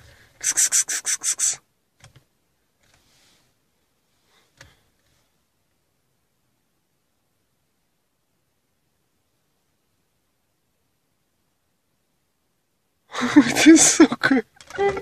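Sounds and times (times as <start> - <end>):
person making hissing calls: 0.4 - 1.7.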